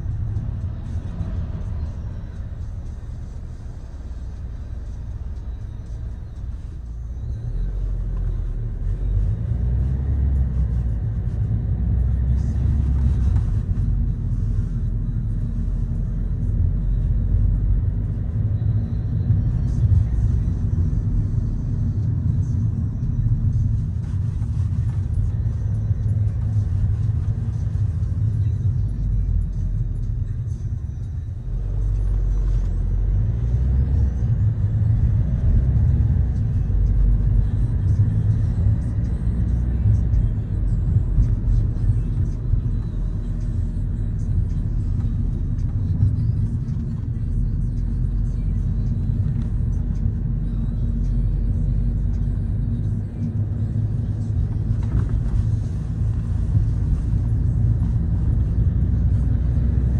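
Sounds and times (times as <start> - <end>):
car driving rumble: 0.0 - 59.9.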